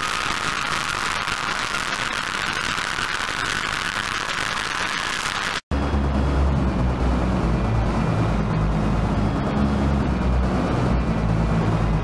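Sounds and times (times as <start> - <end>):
low rumbling electronic drone: 5.2 - 12.0.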